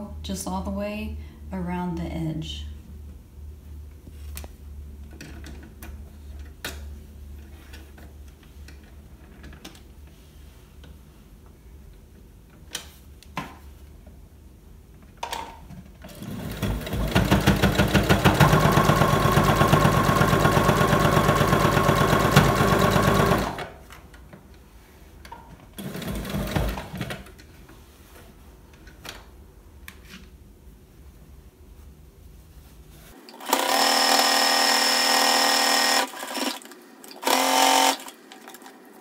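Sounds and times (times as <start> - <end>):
sewing machine stitching: 16.0 - 23.8, 25.8 - 27.3, 33.2 - 38.8
sewing machine clicks: 16.1 - 23.7, 33.3 - 38.8.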